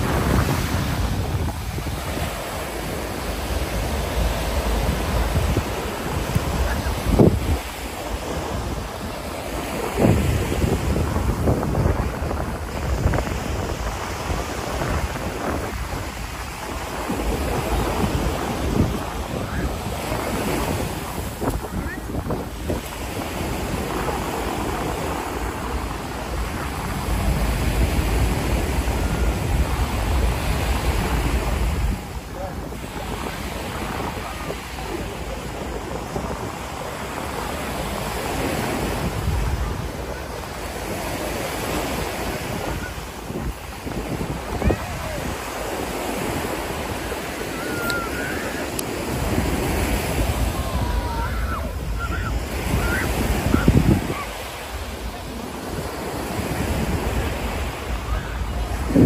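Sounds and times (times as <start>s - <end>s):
ocean surf: 0.0s - 59.0s
wind buffeting microphone: 0.0s - 59.0s.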